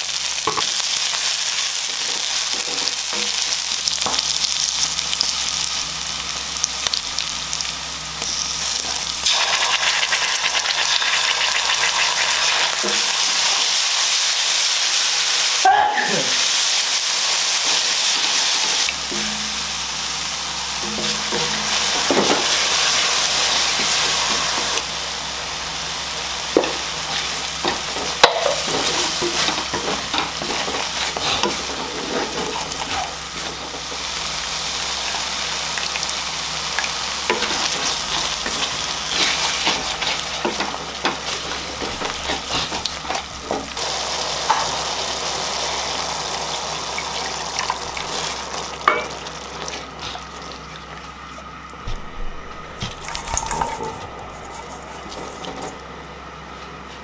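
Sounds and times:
curry paste sizzling in pan: 0.0s - 15.6s, 16.2s - 51.6s
wooden spatula scraping pan: 27.1s - 33.6s.

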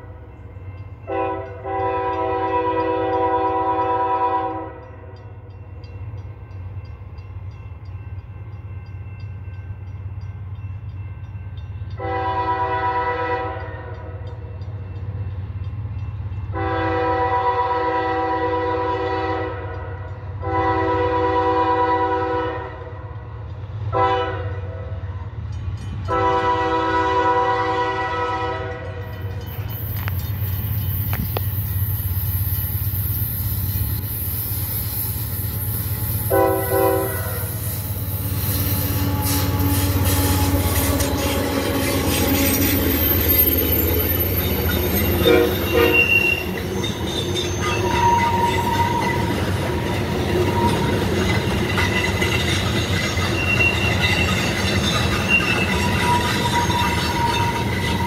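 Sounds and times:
locomotive air horn blasts: 1.1s - 4.9s, 12.0s - 14.2s, 16.6s - 22.9s, 23.9s - 24.8s, 26.1s - 28.9s, 36.2s - 37.8s, 38.5s - 42.6s, 45.1s - 46.7s.

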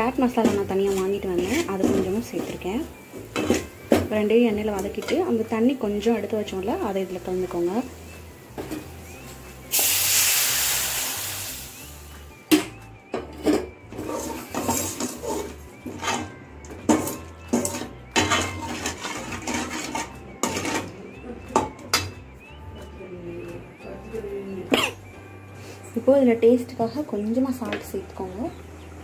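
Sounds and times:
metal skimmer scraping pan: 0.2s - 4.1s, 13.4s - 21.0s
water sizzling in hot oil: 9.3s - 12.1s.

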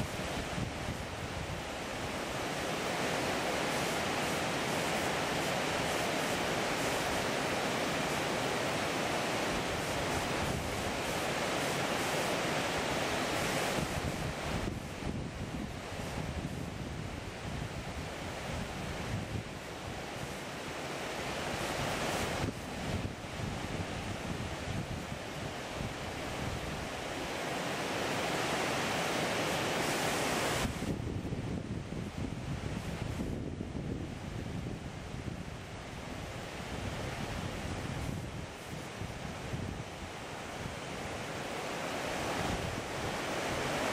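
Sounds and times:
wind rumble on microphone: 0.0s - 11.6s, 12.6s - 43.9s
river water rushing: 0.0s - 14.7s, 17.2s - 30.8s, 35.6s - 43.9s
wind buffeting microphone: 13.7s - 20.4s, 30.6s - 41.2s.

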